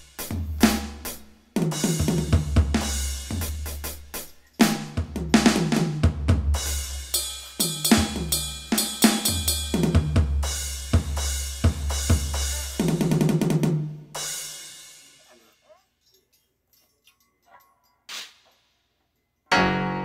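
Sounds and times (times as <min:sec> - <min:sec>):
drum kit playing a beat: 0:00.0 - 0:15.6, 0:18.1 - 0:18.8.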